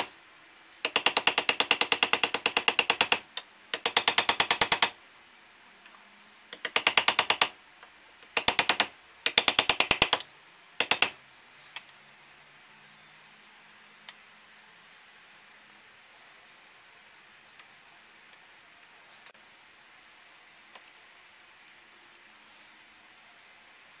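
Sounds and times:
rapid metal tapping: 0.8 - 5.0, 6.6 - 7.6, 8.2 - 10.2.

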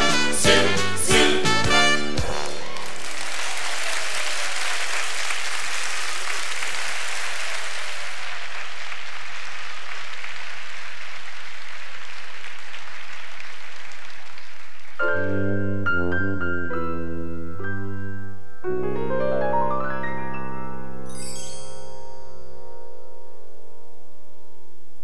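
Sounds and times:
audience applauding: 2.2 - 15.0
piano playing: 15.0 - 24.7.

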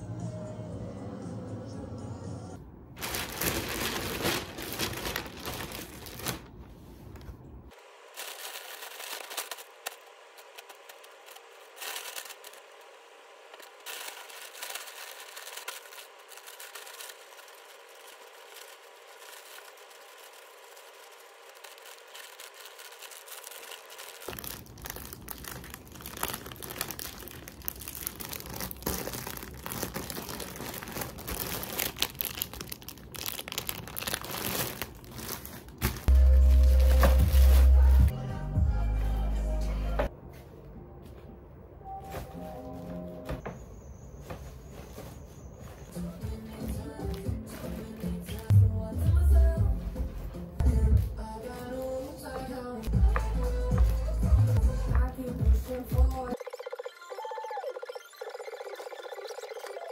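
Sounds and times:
plastic bags crinkling: 3.0 - 7.3, 7.9 - 38.1.

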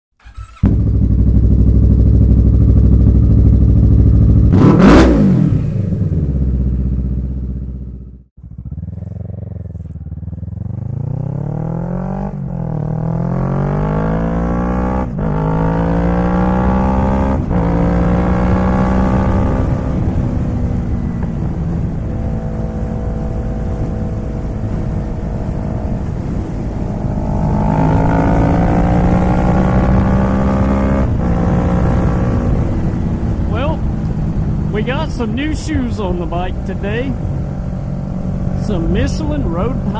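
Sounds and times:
motorcycle engine accelerating: 0.2 - 39.9.

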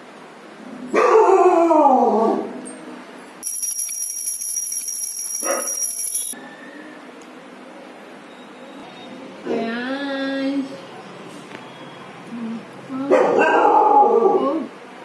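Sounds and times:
hand bell rung rapidly: 3.4 - 6.4.

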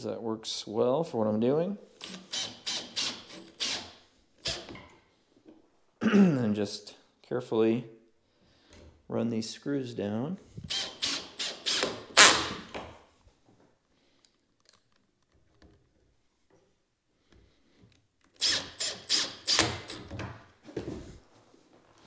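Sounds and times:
drill driving screws into wood: 2.0 - 4.9, 10.6 - 12.8, 18.3 - 20.2.

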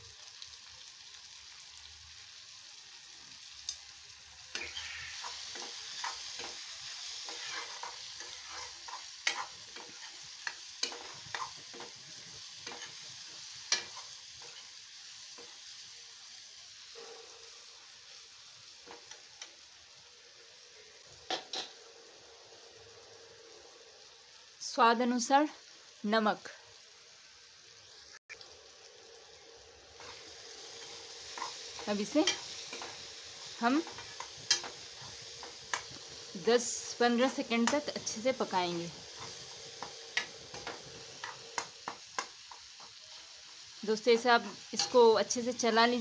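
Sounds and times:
food sizzling in oil: 0.0 - 46.0
metal spoon scraping a pan: 4.5 - 14.7, 21.3 - 21.8, 30.8 - 36.2, 44.8 - 45.0.

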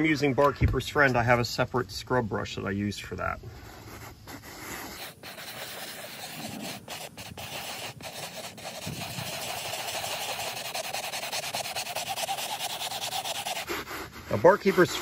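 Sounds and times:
scrub brush scrubbing upholstery: 3.9 - 15.0.

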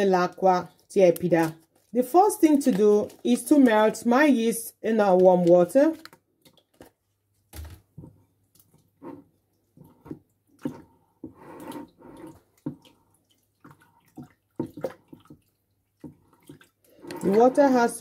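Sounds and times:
hand stirring water in bowl: 7.9 - 18.0.

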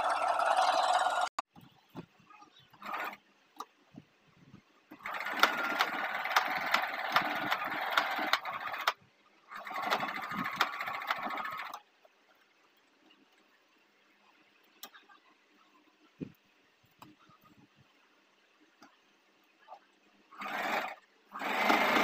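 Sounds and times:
sewing machine stitching: 2.8 - 3.2, 4.9 - 11.8, 20.4 - 22.0.

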